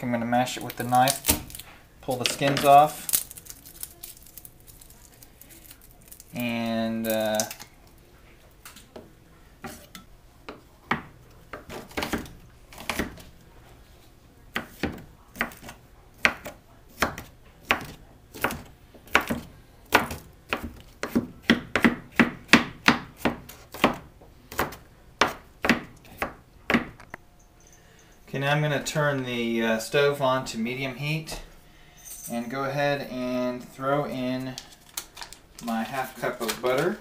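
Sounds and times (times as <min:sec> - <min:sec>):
knife chopping on wooden board: 0:14.5 - 0:27.0.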